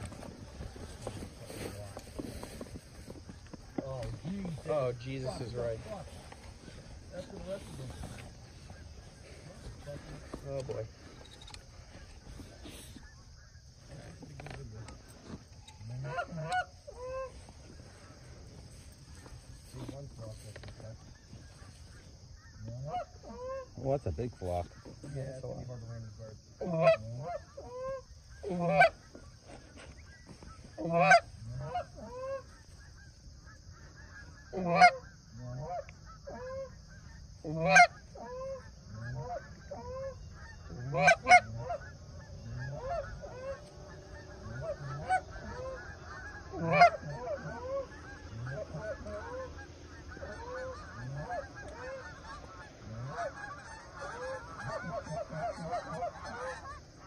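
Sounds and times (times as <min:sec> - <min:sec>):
geese honking and clucking: 0:00.0 - 0:57.0
sharp single goose honks: 0:33.6 - 0:57.0.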